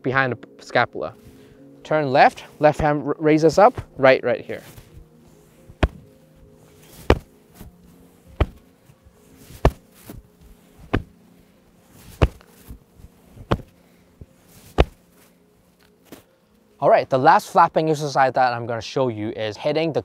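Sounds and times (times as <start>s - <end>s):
faint background music: 0.0s - 20.0s
hands slapping the body: 3.7s - 4.0s, 5.7s - 6.1s, 6.9s - 7.7s, 8.3s - 8.7s, 9.4s - 11.2s, 12.0s - 12.8s, 13.4s - 13.7s, 14.6s - 15.0s.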